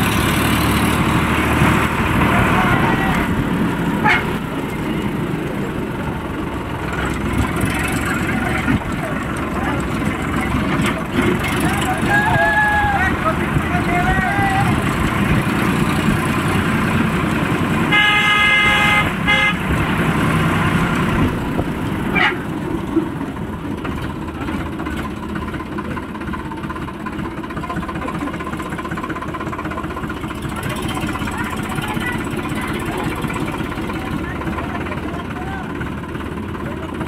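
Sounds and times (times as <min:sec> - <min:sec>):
tractor diesel engine running: 0:00.0 - 0:37.0
horn blasts: 0:04.0 - 0:04.5, 0:17.9 - 0:19.8.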